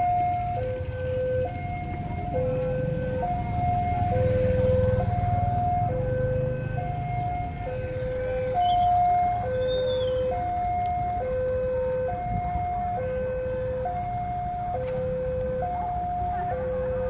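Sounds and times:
level crossing two-tone alarm: 0:00.0 - 0:17.0
traffic rumble: 0:00.0 - 0:17.0.

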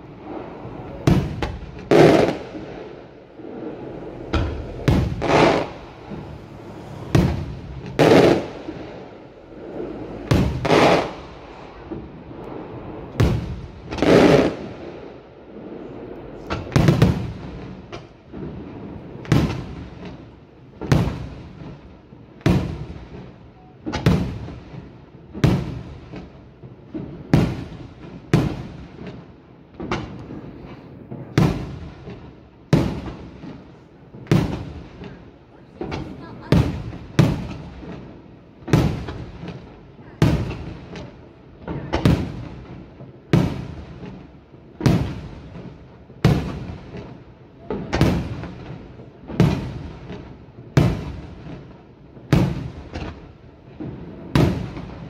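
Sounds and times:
firework shells bursting: 0:00.2 - 0:14.7.

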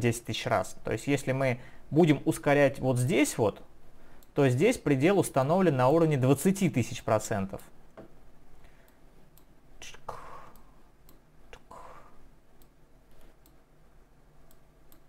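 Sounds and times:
short breathy noises: 0:11.6 - 0:12.3
computer mouse clicking: 0:14.5 - 0:15.0.

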